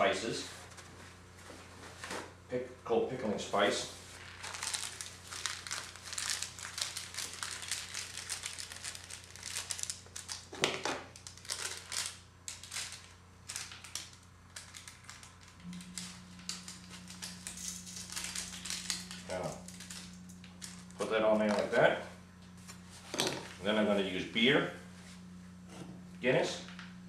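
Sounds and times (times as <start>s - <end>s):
steady low hum: 0.0s - 27.0s
plastic packaging crinkling: 4.2s - 21.9s.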